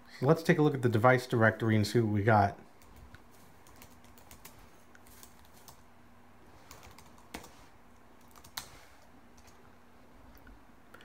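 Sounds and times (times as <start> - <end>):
laptop keyboard typing: 2.8 - 5.8, 6.6 - 7.6, 8.2 - 9.6.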